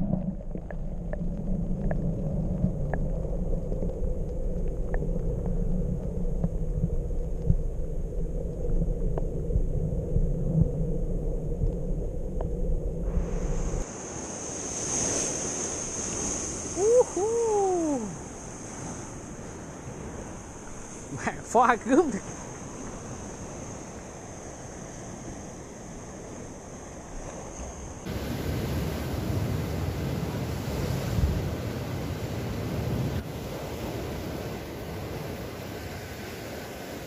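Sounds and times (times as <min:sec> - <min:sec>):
faint underwater clicks: 0:00.0 - 0:07.7
underwater sea rumble: 0:00.0 - 0:13.9
wind on microphone: 0:01.2 - 0:21.2, 0:28.1 - 0:37.0
surf on shore: 0:13.0 - 0:37.0.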